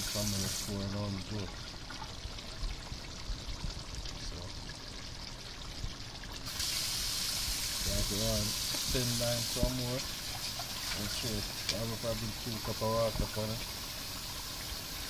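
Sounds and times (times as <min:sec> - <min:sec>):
steady hiss: 0:00.0 - 0:01.4, 0:06.4 - 0:15.0
stew bubbling in pot: 0:00.0 - 0:15.0
person speaking: 0:11.0 - 0:13.6.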